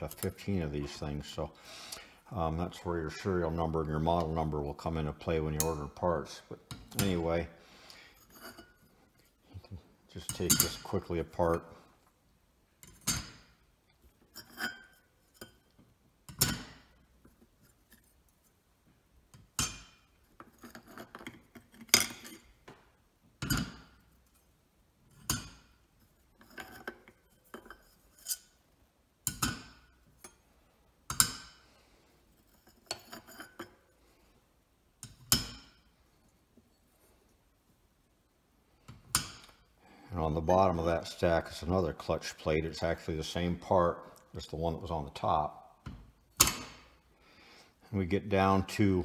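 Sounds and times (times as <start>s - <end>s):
metal discs clinking: 10.2s - 11.2s, 25.1s - 28.5s, 32.4s - 33.8s.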